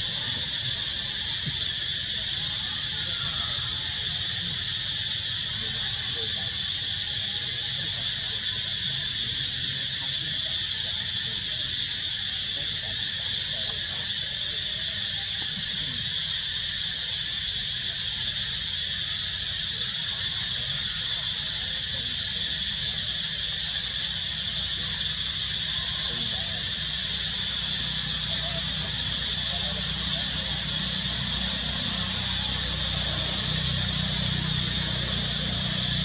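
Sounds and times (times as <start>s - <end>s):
insect chorus drone: 0.0s - 36.0s.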